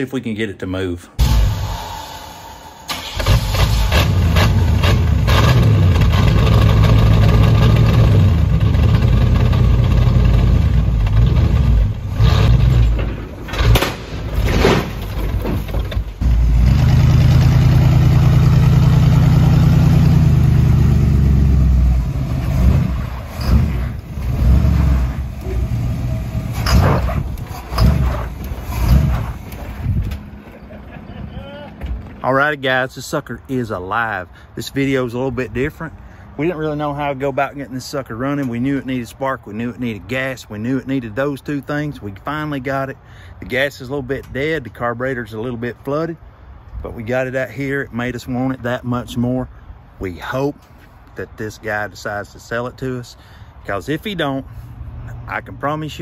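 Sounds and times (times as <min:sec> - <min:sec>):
loud engine revving: 0:01.2 - 0:13.0, 0:16.2 - 0:29.5.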